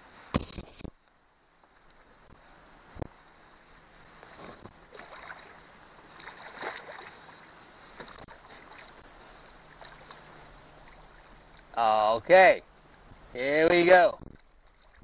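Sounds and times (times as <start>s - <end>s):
water splashing: 4.0s - 11.8s, 14.2s - 15.0s.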